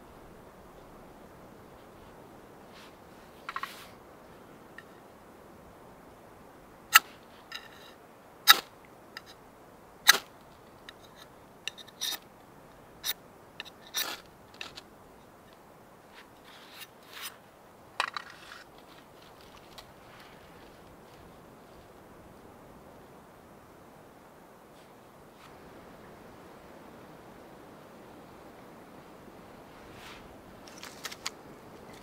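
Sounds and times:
fire steel scraping: 0:18.0 - 0:21.8.

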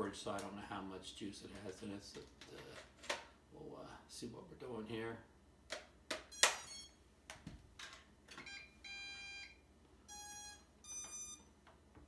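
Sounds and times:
short electronic beeps: 0:06.3 - 0:07.0, 0:08.5 - 0:11.5.

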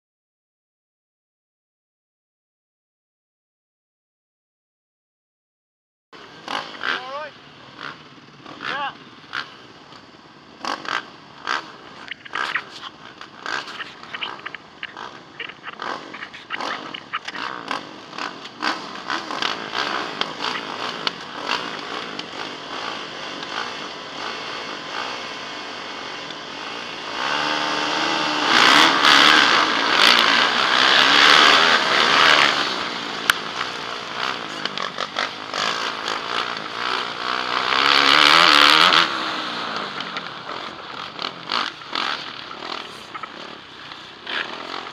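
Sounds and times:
motorcycle at full throttle: 0:06.2 - 0:44.9
motorcycle engines revving: 0:06.2 - 0:44.9.

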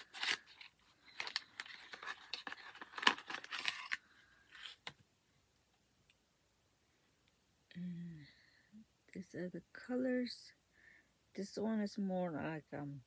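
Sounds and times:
packaging rustling and tearing: 0:00.0 - 0:04.9.

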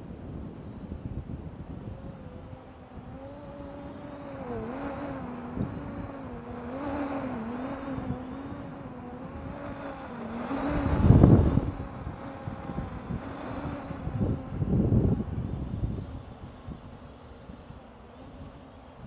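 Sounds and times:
drone motors buzzing: 0:00.6 - 0:19.0.

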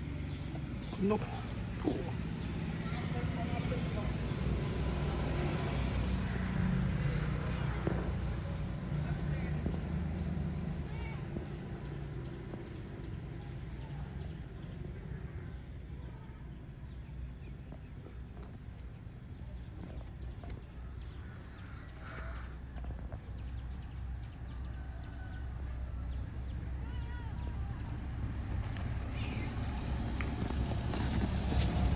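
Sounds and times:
steady low rumble: 0:00.0 - 0:15.7.

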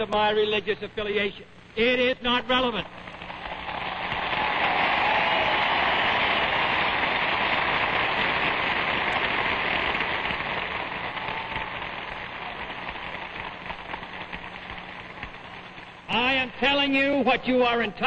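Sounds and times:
low recording hum: 0:00.0 - 0:18.0
crowd applauding: 0:03.1 - 0:15.4.

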